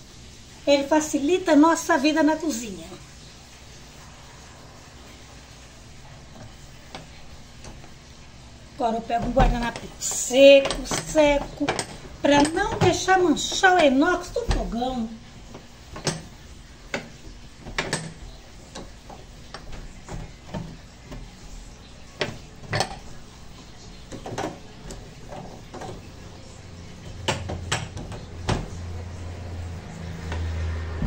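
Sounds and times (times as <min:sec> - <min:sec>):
low steady hum: 0:00.0 - 0:31.0
metallic clicks and knocks: 0:09.2 - 0:13.8, 0:15.5 - 0:23.2.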